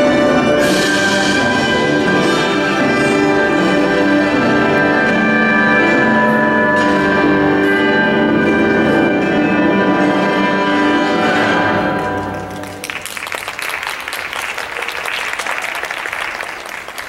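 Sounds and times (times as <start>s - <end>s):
orchestral music: 0.0s - 14.4s
audience applause: 12.1s - 17.0s.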